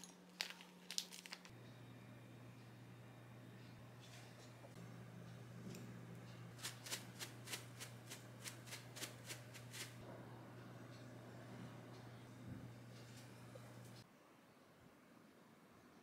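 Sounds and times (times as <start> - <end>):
spice jar shaker rattling: 6.6 - 10.0.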